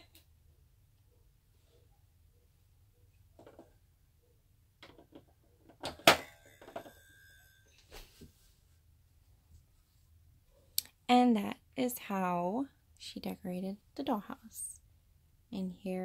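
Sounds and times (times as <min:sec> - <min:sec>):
plastic toys clicking and knocking: 0:04.8 - 0:06.9.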